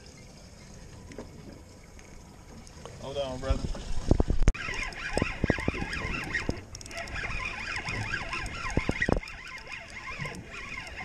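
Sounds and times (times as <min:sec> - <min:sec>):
fishing reel whirring: 0:04.5 - 0:11.0.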